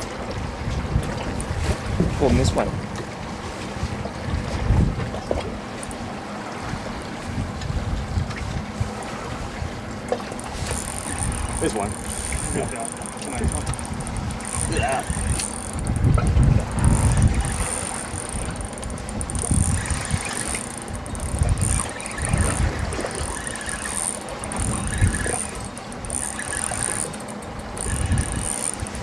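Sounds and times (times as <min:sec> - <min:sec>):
wind gusting on microphone: 0:00.4 - 0:02.9, 0:03.8 - 0:05.6, 0:06.6 - 0:29.0
thin high-pitched whine: 0:10.4 - 0:29.0.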